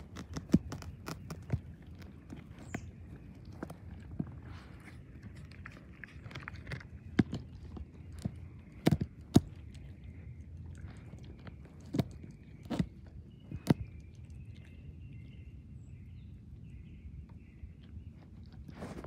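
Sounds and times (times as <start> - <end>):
teeth clicking on ball: 0.0 - 4.3, 5.3 - 14.8
dog gnawing a ball: 0.0 - 14.6.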